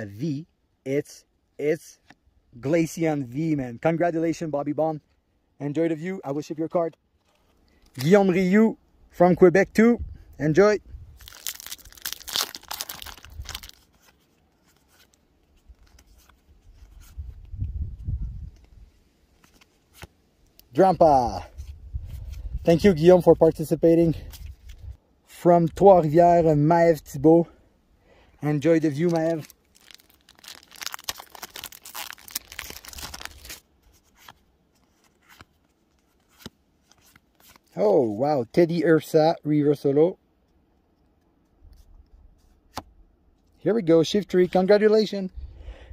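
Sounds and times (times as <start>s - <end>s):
foil wrapper tearing and crinkling: 11.2s - 14.0s, 28.8s - 33.6s.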